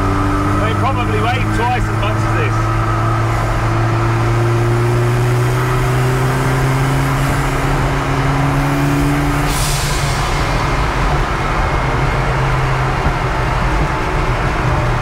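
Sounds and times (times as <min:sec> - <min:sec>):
car engine running: 0:00.0 - 0:15.0
engine hiss: 0:09.2 - 0:11.4.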